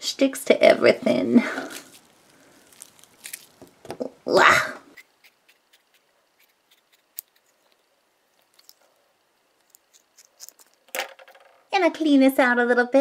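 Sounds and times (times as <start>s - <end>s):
scissors snipping rubber: 5.0s - 7.8s.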